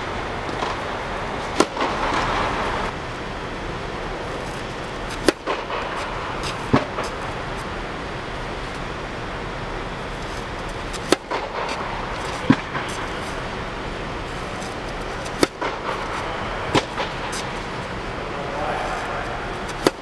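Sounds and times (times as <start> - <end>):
tennis racket striking balls: 0.0 - 2.9, 4.4 - 7.8, 10.2 - 13.5, 14.5 - 18.0, 19.2 - 20.0
steady background rush: 0.0 - 20.0.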